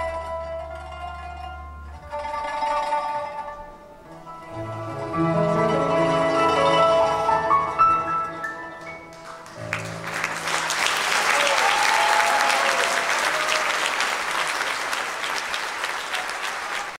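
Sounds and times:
audience applauding: 8.7s - 17.0s.

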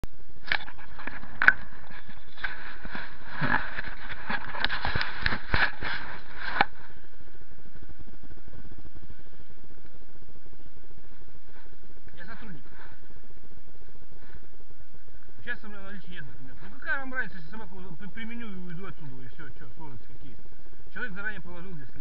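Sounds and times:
footsteps crunching on snow: 0.6s - 9.2s, 11.0s - 13.2s.

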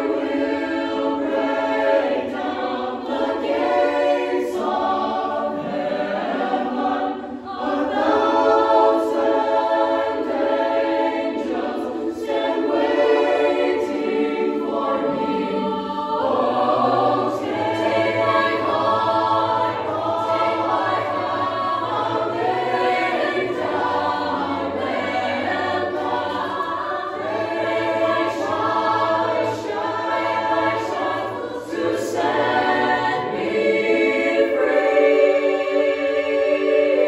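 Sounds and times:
choir singing a cappella: 0.0s - 37.0s.

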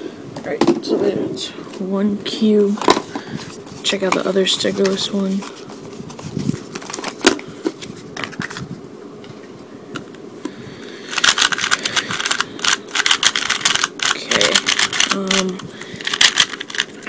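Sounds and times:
cardboard box rustling: 2.8s - 8.6s
puzzle cube rapid clicking: 11.1s - 17.0s.

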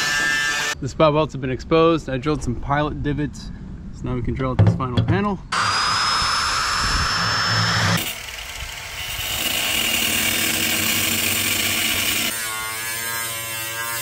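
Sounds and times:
angle grinder whining: 5.5s - 14.0s
electric drill: 5.5s - 14.0s.

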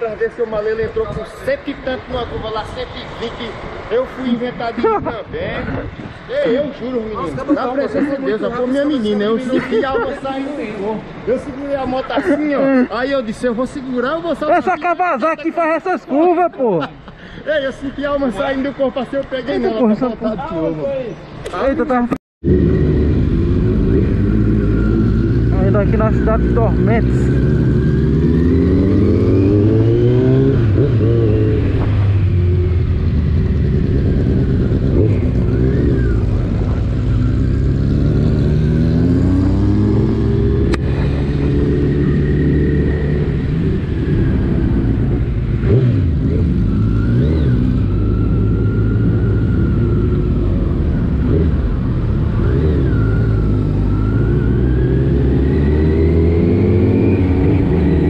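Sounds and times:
motorcycle engine accelerating: 22.4s - 58.0s.

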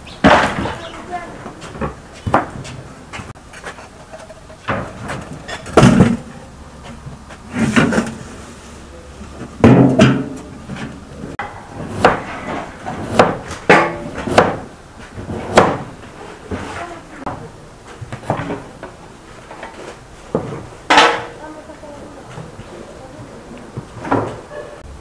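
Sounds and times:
knocks and thuds: 0.2s - 0.9s, 4.7s - 6.3s, 15.2s - 15.9s.

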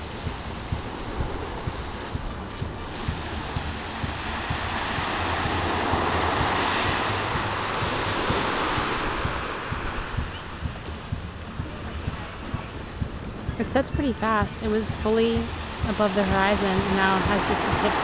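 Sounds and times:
small waves breaking on beach: 0.0s - 13.5s, 14.1s - 18.0s
wind buffeting microphone: 0.0s - 18.0s.

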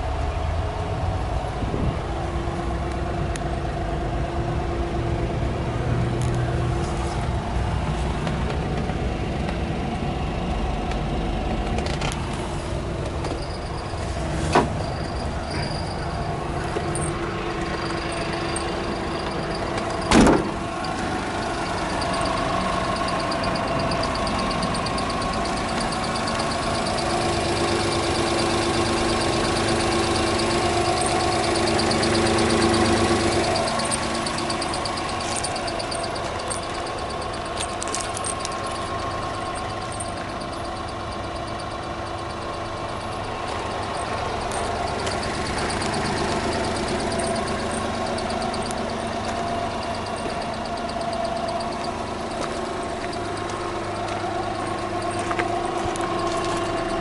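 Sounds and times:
small engine idling: 5.4s - 57.0s
sharp thump: 20.1s - 20.6s.

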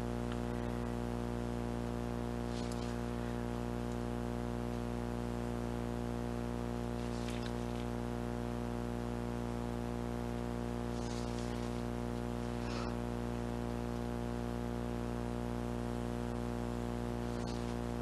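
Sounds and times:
steady multi-tone hum: 0.0s - 18.0s.

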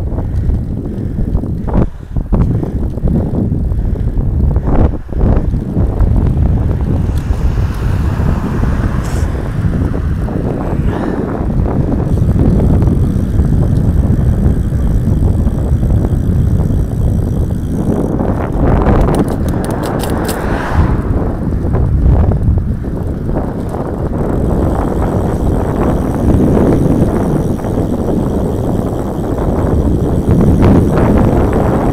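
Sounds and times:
road noise: 0.0s - 31.9s
wind buffeting microphone: 0.0s - 31.9s
sharp rattles: 0.2s - 20.5s, 23.0s - 31.9s
car passing: 4.9s - 13.3s, 19.4s - 22.0s.

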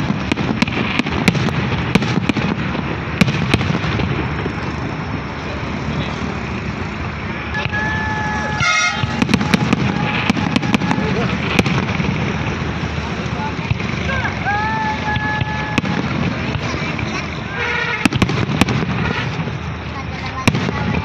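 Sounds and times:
fireworks bangs: 0.0s - 21.0s
vehicle horn: 7.5s - 11.1s, 17.5s - 18.2s, 18.9s - 19.4s.

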